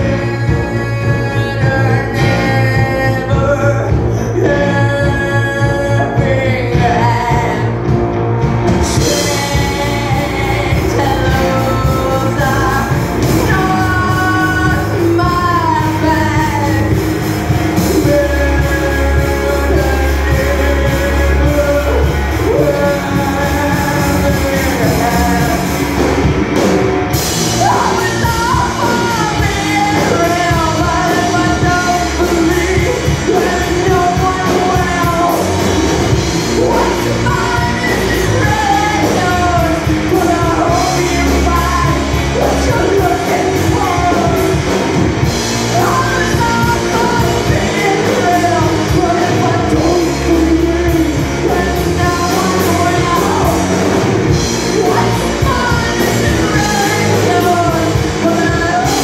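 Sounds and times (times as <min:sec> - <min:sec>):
live rock band playing: 0:00.0 - 0:59.0
woman singing lead: 0:00.0 - 0:59.0.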